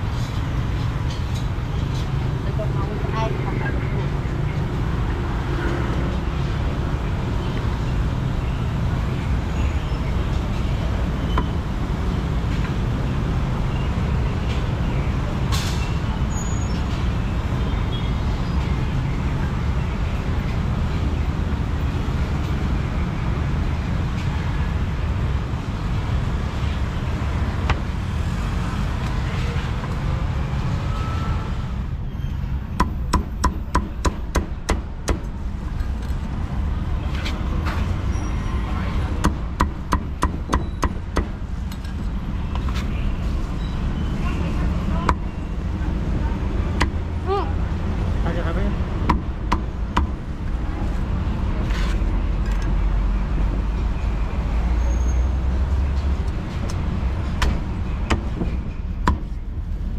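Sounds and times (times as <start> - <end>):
street traffic rumble: 0.0 - 59.9
cleaver chopping on wooden block: 32.8 - 35.3, 39.2 - 41.4, 49.0 - 50.2, 57.4 - 59.3.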